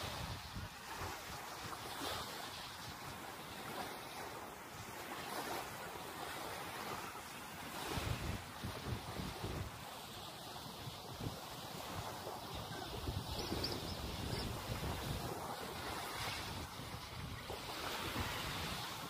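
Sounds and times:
small waves washing on sand: 0:00.0 - 0:19.0
wind rumbling on microphone: 0:07.7 - 0:19.0.

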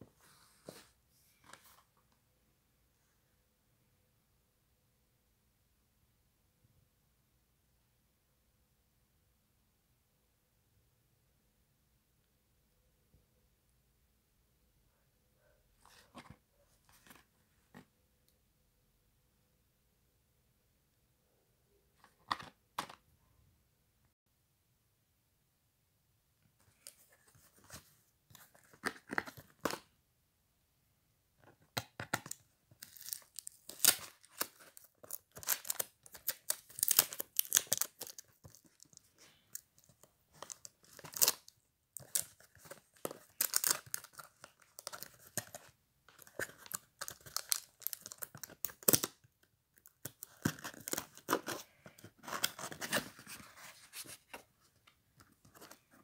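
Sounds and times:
plastic packaging crinkling: 0:40.4 - 0:49.1.

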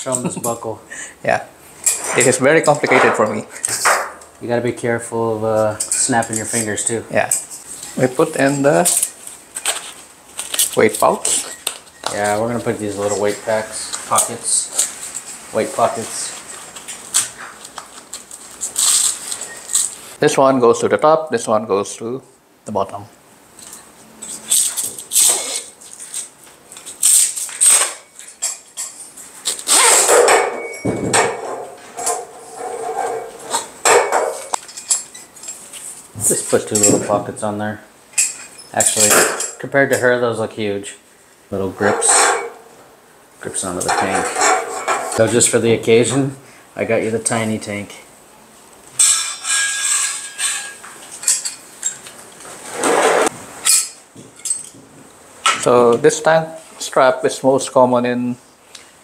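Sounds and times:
straps rustling and scraping: 0:01.8 - 0:03.9, 0:05.6 - 0:20.2, 0:23.5 - 0:30.5, 0:31.1 - 0:37.3, 0:49.0 - 0:55.1
metal clanks and clatter: 0:43.8 - 0:45.2.

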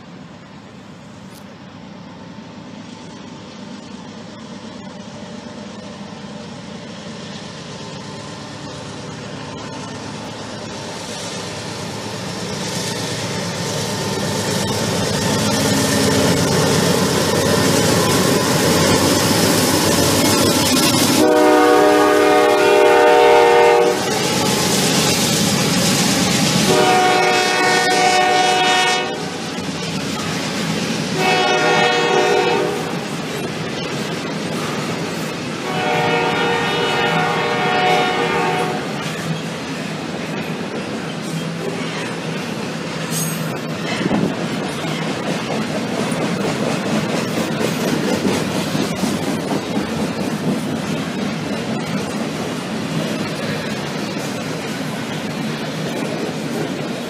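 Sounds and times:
diesel freight train passing: 0:00.0 - 0:57.0
locomotive air horn blasts: 0:21.2 - 0:24.4, 0:26.7 - 0:29.4, 0:31.2 - 0:33.0, 0:35.6 - 0:39.0.

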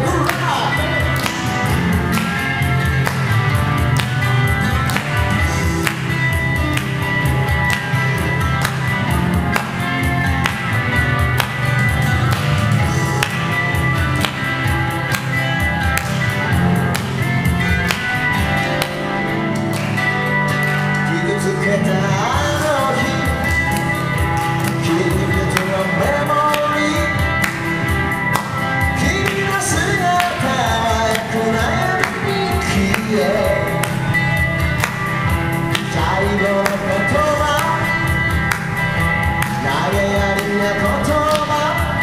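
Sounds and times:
person singing: 0:00.0 - 0:02.4, 0:21.0 - 0:27.6, 0:28.8 - 0:34.1, 0:35.7 - 0:42.0
steady beat: 0:00.0 - 0:21.0, 0:22.4 - 0:42.0
electric guitar strummed chords: 0:00.0 - 0:42.0.

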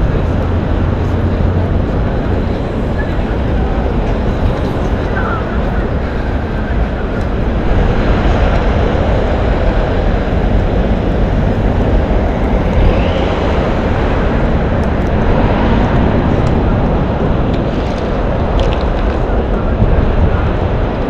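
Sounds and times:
city street traffic rumble: 0:00.0 - 0:21.0.

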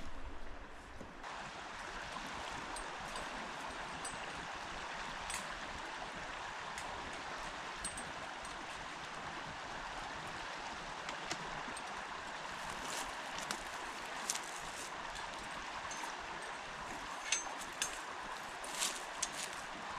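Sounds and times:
stream water rushing: 0:00.0 - 0:19.9.

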